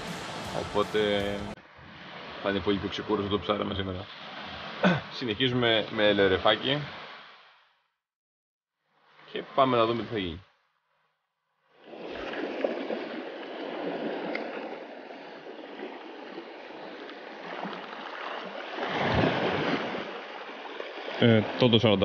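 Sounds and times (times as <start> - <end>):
small waves washing over stones: 11.8 - 21.8.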